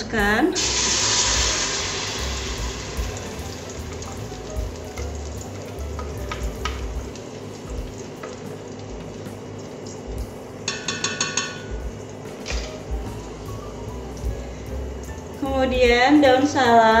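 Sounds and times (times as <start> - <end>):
frying hiss: 0.0 - 17.0
spatula tapping on jug: 10.7 - 11.7.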